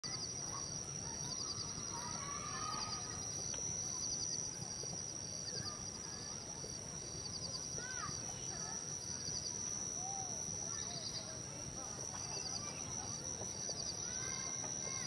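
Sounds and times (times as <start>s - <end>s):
insects chirping trills: 0.0s - 15.0s
high insect drone: 0.1s - 15.0s.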